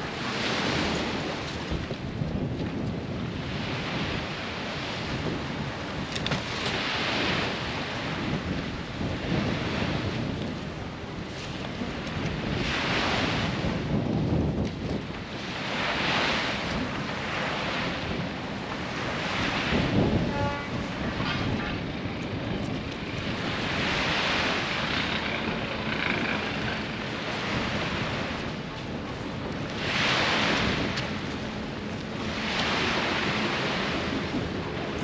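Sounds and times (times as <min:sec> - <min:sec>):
waves washing onto sandy beach: 0:00.0 - 0:35.0
wind buffeting microphone: 0:00.0 - 0:35.0.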